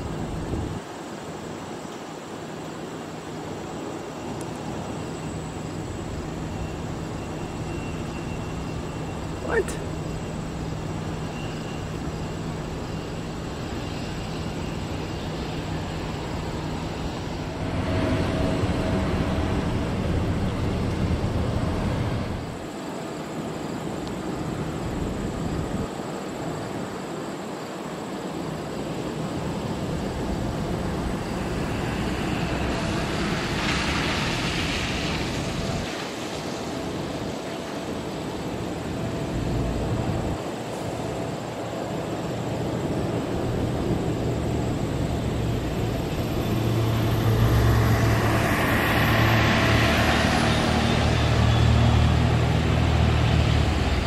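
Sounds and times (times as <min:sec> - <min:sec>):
jet engine rushing: 0:04.0 - 0:26.2, 0:28.5 - 0:54.0.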